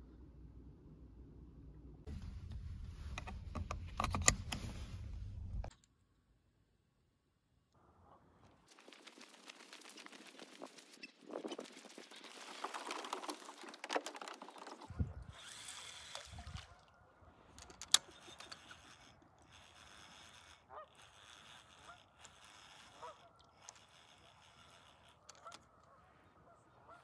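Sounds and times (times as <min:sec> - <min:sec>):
waterfowl honking: 0:20.7 - 0:21.0, 0:22.8 - 0:23.5, 0:25.3 - 0:27.0.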